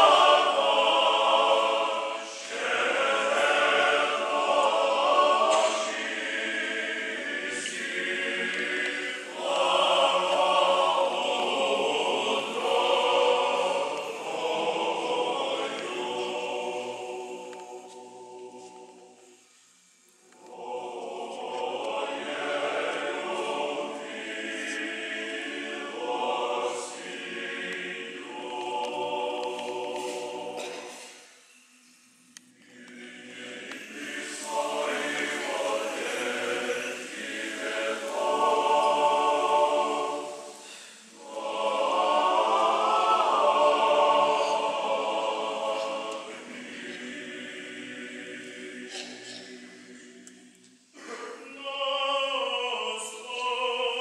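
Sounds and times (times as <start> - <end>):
choir singing liturgical chant: 0.0 - 54.0
short breath: 40.6 - 41.1.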